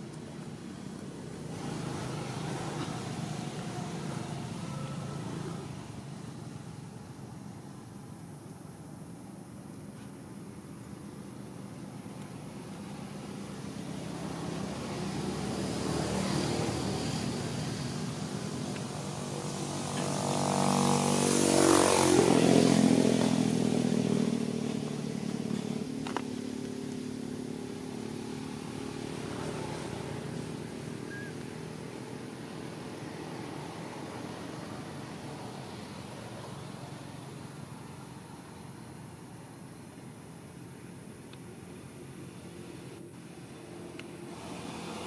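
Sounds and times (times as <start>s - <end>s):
vehicle engine passing by: 1.4s - 6.8s, 13.6s - 37.1s, 44.2s - 45.0s.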